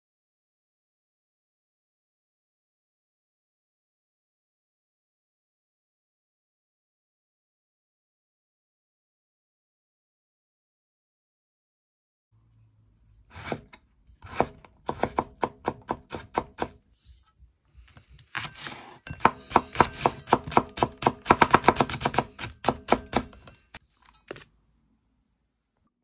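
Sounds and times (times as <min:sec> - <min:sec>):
knife chopping on wooden board: 0:13.3 - 0:16.8, 0:18.2 - 0:23.6.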